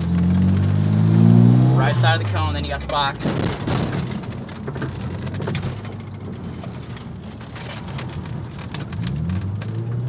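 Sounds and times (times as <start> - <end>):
car engine from inside cabin: 0.0 - 10.0
crackle of sharp clicks: 7.5 - 10.0.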